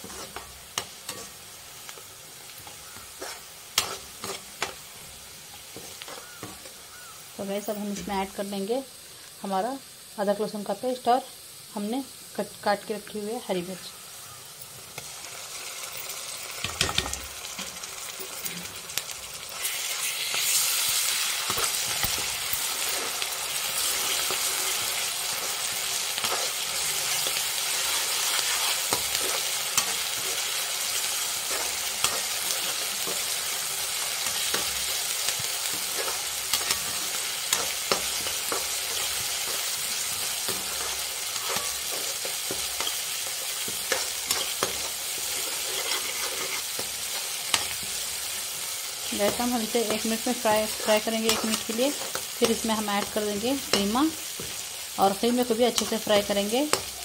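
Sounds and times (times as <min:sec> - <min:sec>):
spatula scraping and clicking on pan: 0:00.0 - 0:02.0, 0:02.6 - 0:04.8, 0:31.5 - 0:33.4, 0:34.2 - 0:48.0, 0:50.6 - 0:54.6
food sizzling in hot oil: 0:00.0 - 0:57.0.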